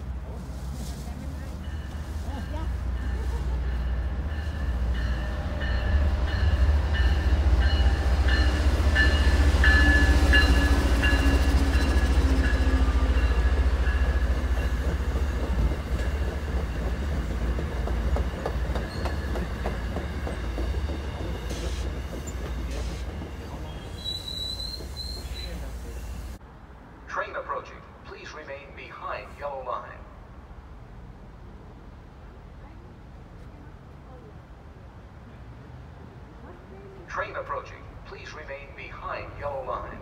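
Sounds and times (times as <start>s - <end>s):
train wheels rumbling on rails: 0.0s - 26.4s.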